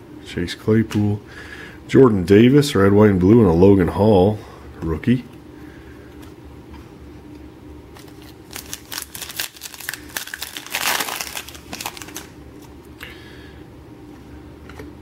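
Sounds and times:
foil wrapper crinkling and tearing: 8.0s - 12.7s.

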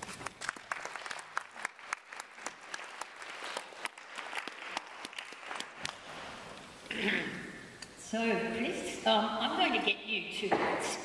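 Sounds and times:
separate claps: 0.0s - 6.1s
audience applauding: 0.0s - 6.2s.

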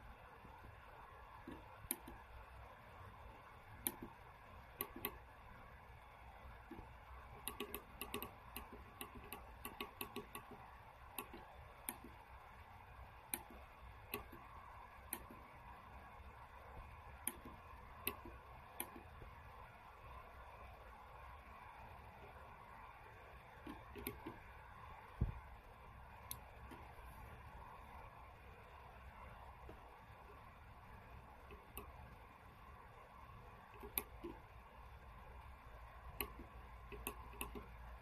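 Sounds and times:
push buttons clicking: 1.4s - 2.2s, 3.8s - 5.3s, 6.7s - 12.2s, 13.3s - 14.5s, 15.1s - 15.5s, 17.2s - 19.1s, 23.6s - 24.4s, 33.6s - 34.4s, 36.1s - 37.8s.

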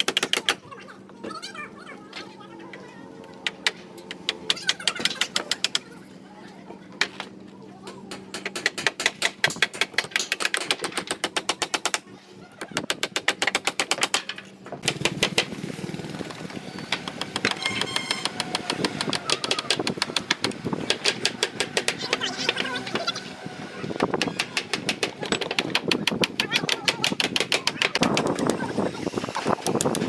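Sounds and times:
hammers driving nails into wood: 8.1s - 12.0s, 12.8s - 15.5s, 16.9s - 22.3s, 24.0s - 28.5s.

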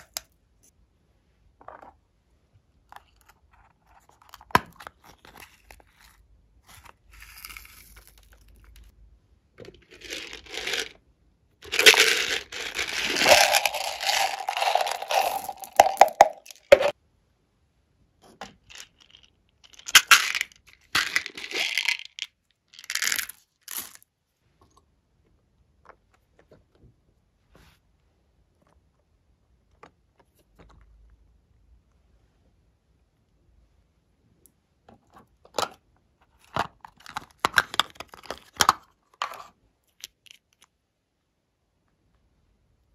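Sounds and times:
plastic beads poured onto slime: 9.8s - 11.0s, 11.6s - 16.9s, 19.7s - 22.2s.

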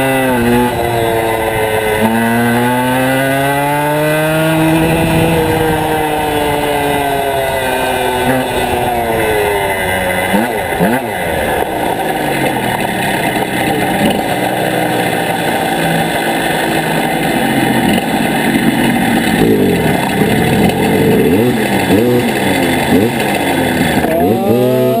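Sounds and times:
motorcycle engine running hard: 0.0s - 25.0s
wind noise: 4.0s - 14.3s.

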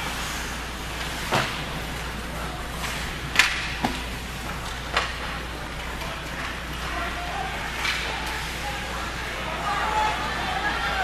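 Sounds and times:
hockey sticks and puck cracking: 2.8s - 8.6s.

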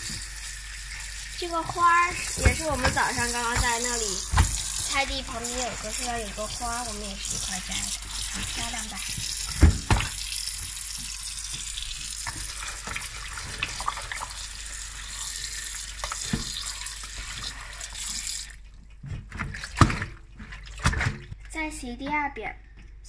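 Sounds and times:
tap running into sink: 1.6s - 14.3s, 16.0s - 18.3s
light knocks and splashes: 1.7s - 6.0s, 19.0s - 21.4s.

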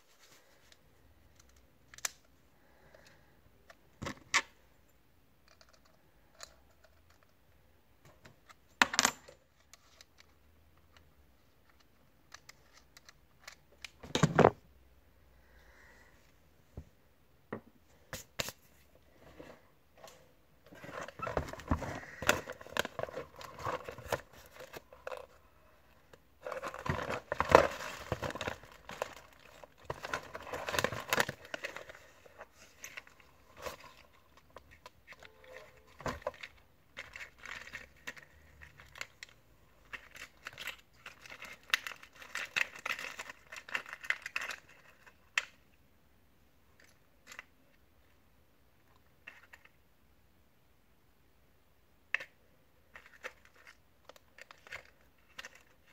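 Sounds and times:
plastic packaging crinkling: 26.4s - 39.3s.

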